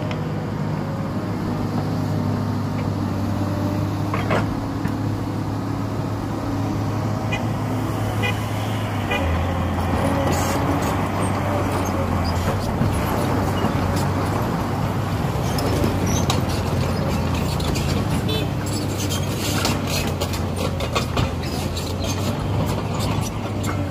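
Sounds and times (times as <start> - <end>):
diesel excavator engine running: 0.0 - 23.9
clanks and clicks from tracks: 15.5 - 23.9.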